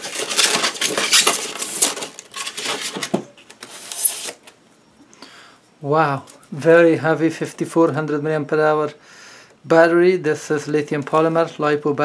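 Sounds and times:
foam rustling and scraping: 0.0 - 3.1.

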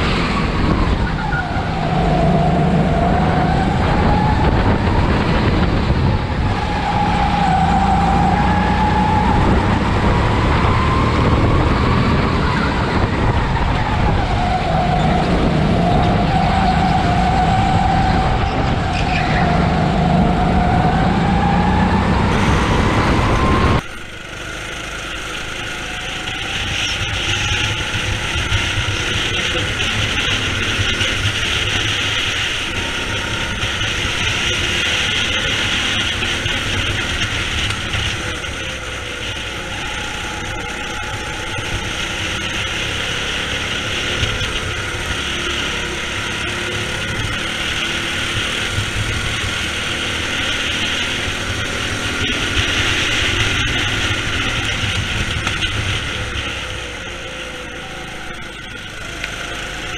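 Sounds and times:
go-kart engine racing: 0.0 - 59.9.

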